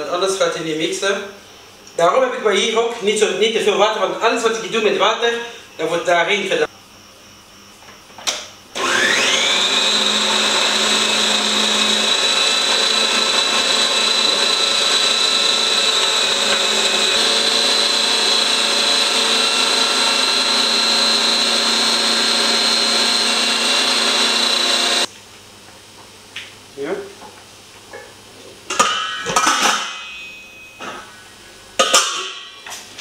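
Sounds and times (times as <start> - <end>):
blender motor whine: 8.8 - 25.1.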